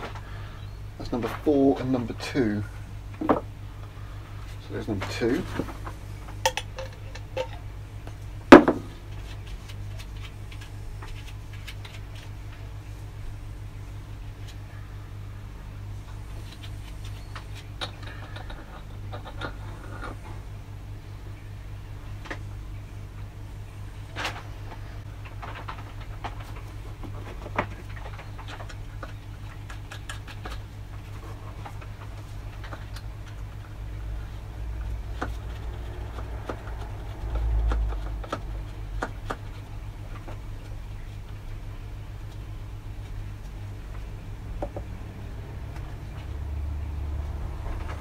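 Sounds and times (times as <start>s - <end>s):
steady low hum: 0.0s - 48.0s
object knocked down on workbench: 8.5s - 8.9s.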